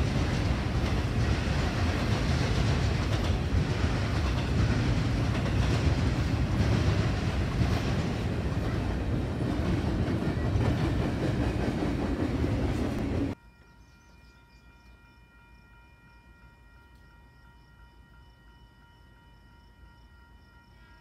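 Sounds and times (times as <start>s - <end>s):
freight train wheels rumbling on rail: 0.0s - 13.4s.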